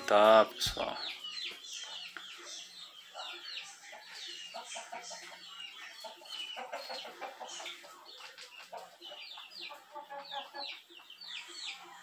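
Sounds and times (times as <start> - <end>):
chickens clucking: 0.0 - 12.0
small birds chirping: 0.0 - 12.0.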